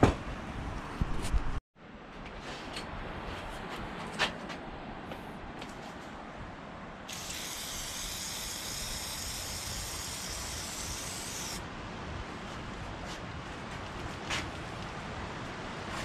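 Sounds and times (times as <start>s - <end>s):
aerosol can spraying: 7.1s - 11.6s.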